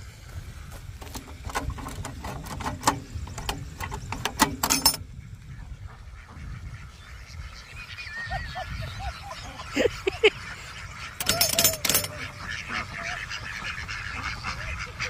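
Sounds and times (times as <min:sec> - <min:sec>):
crank ratcheting clicks: 0:11.2 - 0:12.1.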